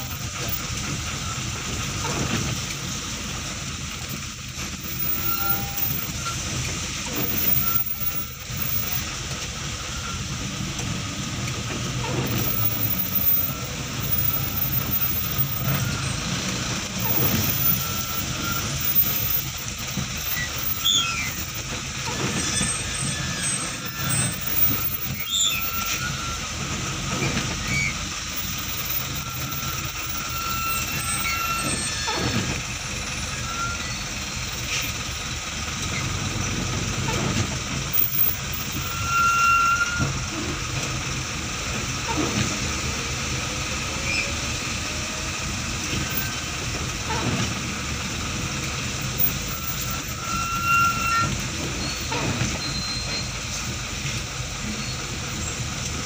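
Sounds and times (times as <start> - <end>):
heavy vehicle engine rumbling: 0.0 - 56.0
brief squeaks: 5.0 - 9.0, 17.0 - 26.5, 27.1 - 35.0, 44.0 - 45.1, 49.2 - 53.4.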